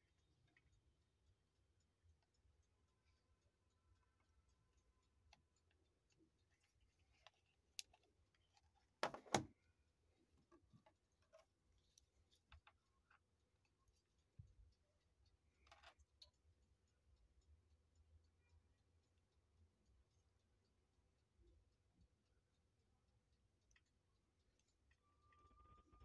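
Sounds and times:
small handling clicks: 0:05.3 - 0:09.6, 0:15.6 - 0:16.4.

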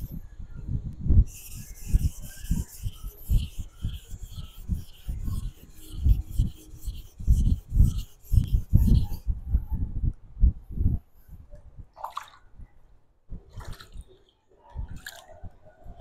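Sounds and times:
knife scraping on whetstone: 0:01.3 - 0:09.2.

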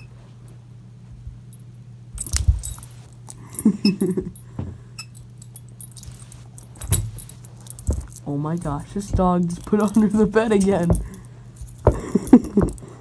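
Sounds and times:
steady low hum: 0:00.0 - 0:13.0
metal tags jingling: 0:02.2 - 0:04.2, 0:05.1 - 0:13.0
soft thumps: 0:06.8 - 0:13.0.

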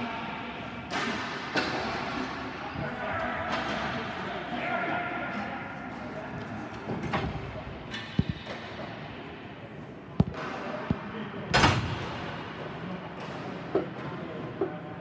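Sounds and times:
hockey sticks knocking ball: 0:10.2 - 0:12.0.

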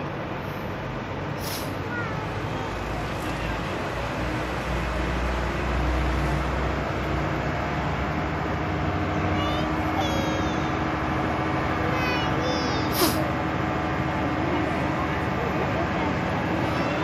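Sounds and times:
fire hose jet spraying: 0:01.4 - 0:01.8, 0:12.8 - 0:13.4
pump engine running: 0:02.4 - 0:17.0.

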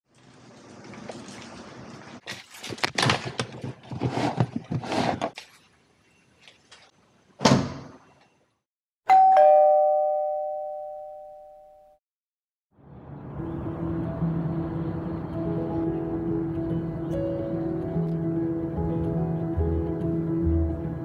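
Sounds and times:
two-note ding-dong chime: 0:09.1 - 0:12.0.

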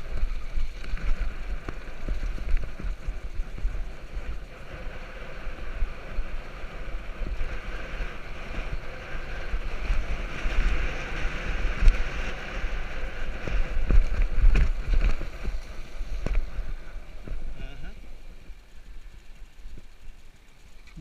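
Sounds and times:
wind noise on camera: 0:00.0 - 0:20.0
bike rattling and knocking: 0:00.0 - 0:21.0
bike tyre rumble on dirt: 0:00.0 - 0:21.0.

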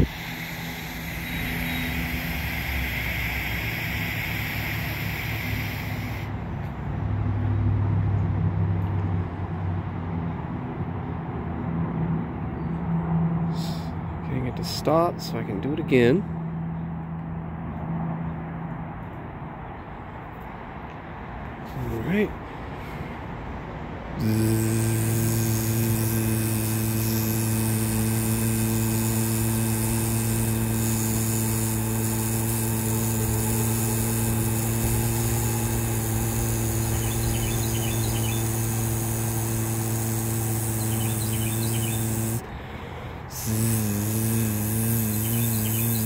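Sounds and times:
birds chirping faintly: 0:00.0 - 0:06.2, 0:34.6 - 0:42.4, 0:43.6 - 0:46.0
man's low vocal buzz: 0:00.0 - 0:06.8, 0:13.4 - 0:16.2, 0:21.6 - 0:23.2, 0:23.8 - 0:46.0.

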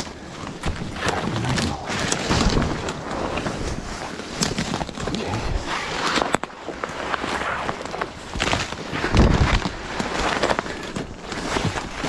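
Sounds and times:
fabric rustling and handling noise: 0:00.0 - 0:12.0.

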